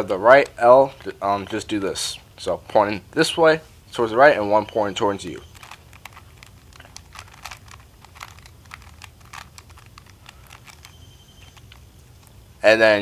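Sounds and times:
puzzle cube plastic clicks: 4.4s - 12.4s.

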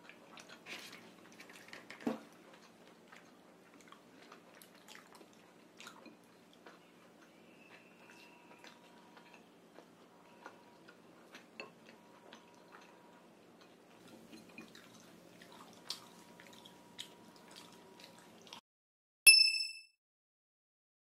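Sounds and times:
soft chewing and mouth smacks: 0.0s - 18.6s
bright chime: 19.3s - 19.9s.

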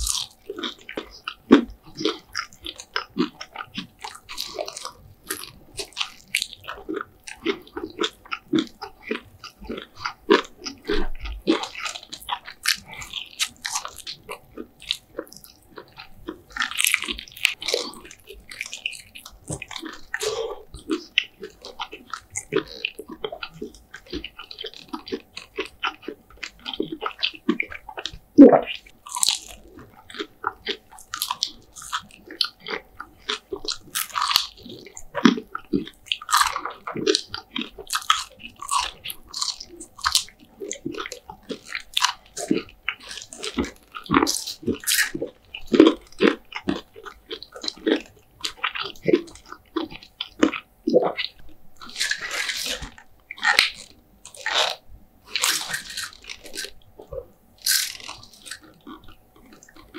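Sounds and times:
chewing: 0.0s - 59.9s
crisp bites and crunches: 0.0s - 59.9s.

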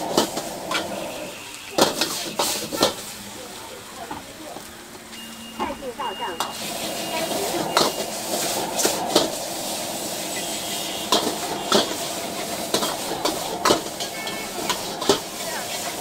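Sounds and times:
noodles sizzling in a wok: 0.0s - 16.0s
metal ladle scraping a wok: 6.5s - 16.0s.

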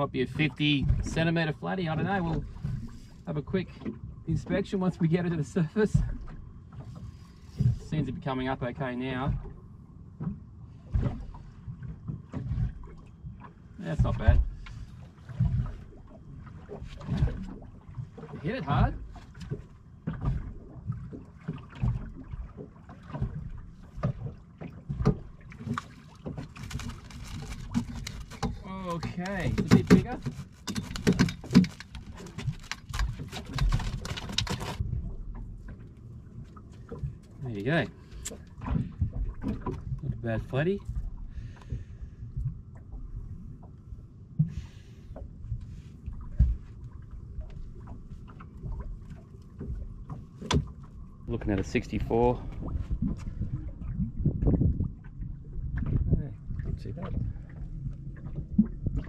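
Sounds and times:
water slapping against boat hull: 0.0s - 59.0s
wind on microphone: 51.2s - 59.0s.

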